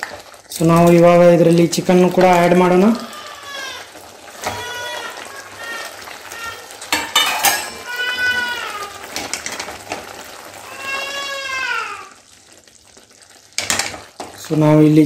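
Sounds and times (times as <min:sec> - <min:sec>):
pan sizzling: 0:00.0 - 0:15.0
cat meowing: 0:03.0 - 0:06.8, 0:07.7 - 0:09.1, 0:10.6 - 0:12.1
ladle clattering on pan: 0:06.8 - 0:08.0, 0:13.6 - 0:14.4.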